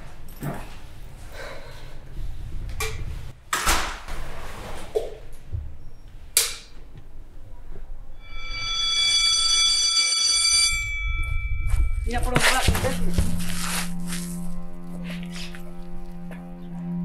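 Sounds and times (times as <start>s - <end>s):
scuffing knock: 11.7s - 14.0s.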